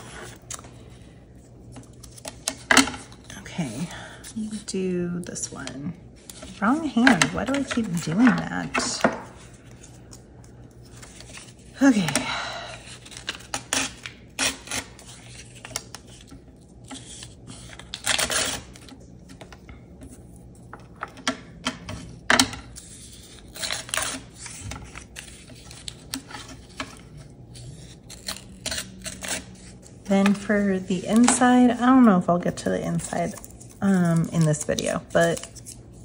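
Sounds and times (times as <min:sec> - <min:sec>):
card stock rustling and scraping: 0:05.3 - 0:12.1, 0:12.8 - 0:36.0.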